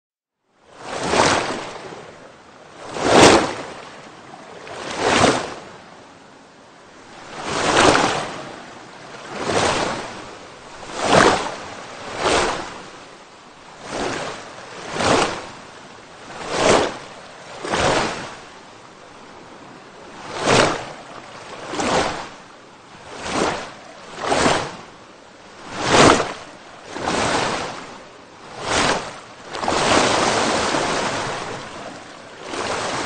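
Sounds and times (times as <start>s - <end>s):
steady wash of water: 0.6s - 33.0s
water rushing in surges: 0.7s - 33.0s.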